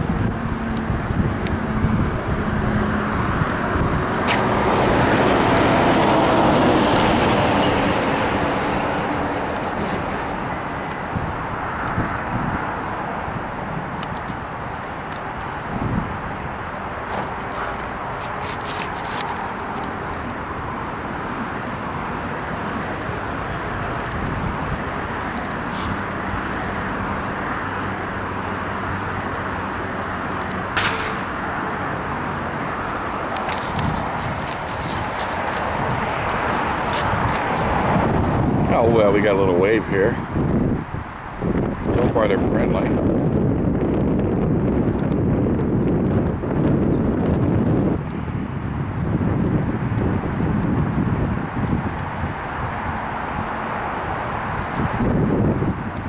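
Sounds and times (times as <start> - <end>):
vehicle passing: 0.0 - 43.8
sharp crack: 30.4 - 32.2
faint sharp crack: 30.7 - 31.6.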